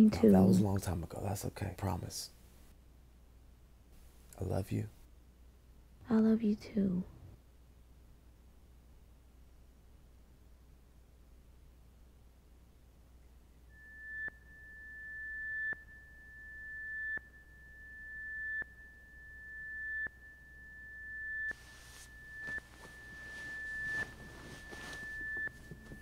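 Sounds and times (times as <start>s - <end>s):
pulsing high electronic tone: 13.7s - 26.0s.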